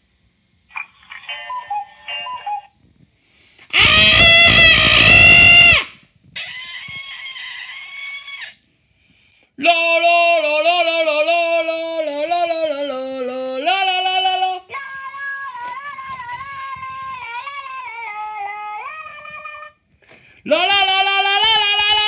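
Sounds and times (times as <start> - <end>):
toy high-pitched voice: 3.7 - 5.8
loud short cry: 3.7 - 7.3
high squeak: 3.7 - 8.6.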